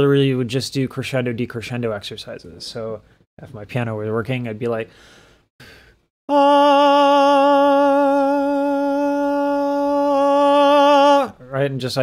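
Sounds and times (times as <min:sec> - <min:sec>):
man singing held note: 0:06.3 - 0:11.4.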